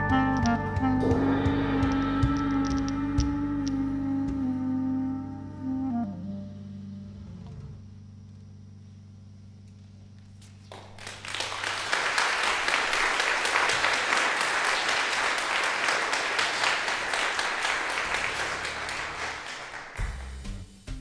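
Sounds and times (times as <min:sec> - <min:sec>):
band's held low chord: 0:00.0 - 0:10.0
audience applauding: 0:10.7 - 0:20.4.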